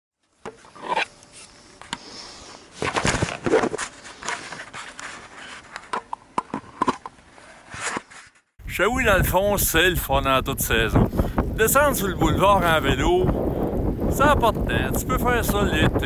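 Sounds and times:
clothing scraping on microphone: 3.1s - 5.9s, 6.6s - 8.5s.

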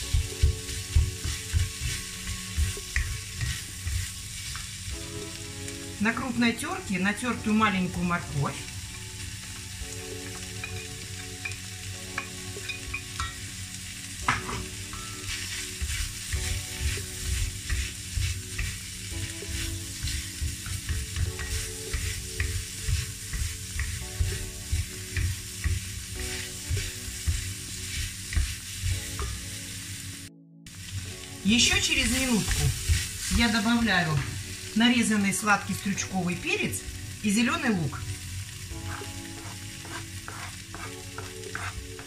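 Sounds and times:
wooden spatulas stirring in pan: 0.0s - 5.8s, 14.2s - 30.0s, 30.7s - 35.9s, 38.6s - 42.0s
food sizzling in a wok: 0.0s - 42.0s.

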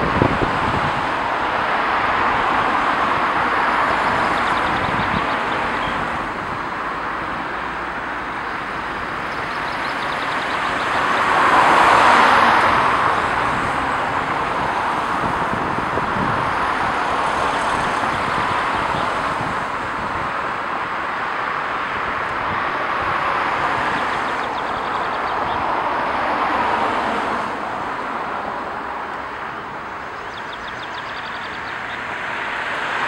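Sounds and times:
car passing close: 0.0s - 33.0s
cars passing: 0.0s - 33.0s.

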